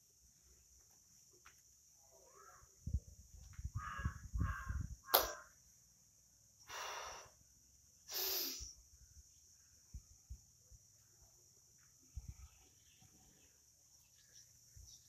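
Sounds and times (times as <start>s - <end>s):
crow cawing: 3.7s - 5.6s
sharp click: 5.1s - 5.4s
short breathy hisses: 6.6s - 7.4s, 8.1s - 8.8s.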